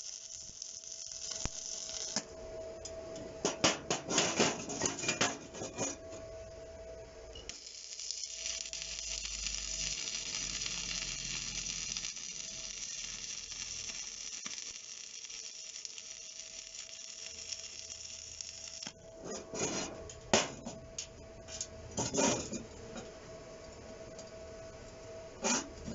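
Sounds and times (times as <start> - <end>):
welding arc crackling: 0.0 - 2.3, 7.5 - 19.0.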